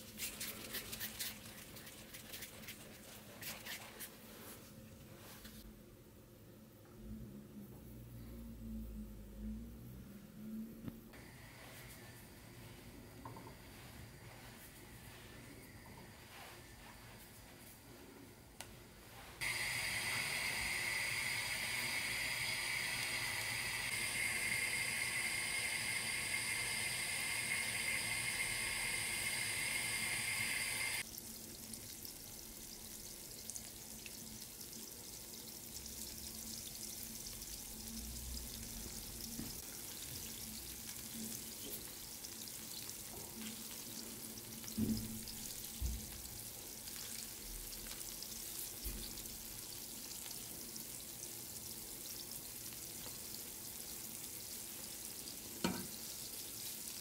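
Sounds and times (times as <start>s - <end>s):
dough frying in oil: 19.1s - 57.0s.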